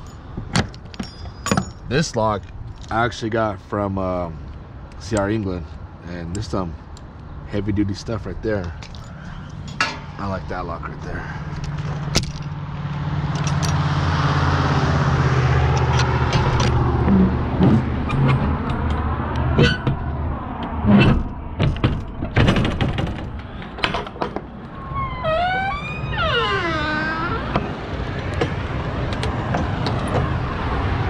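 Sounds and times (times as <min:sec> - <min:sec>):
clanks and knocks: 0:00.4 - 0:01.9, 0:09.7 - 0:10.2, 0:15.7 - 0:24.6.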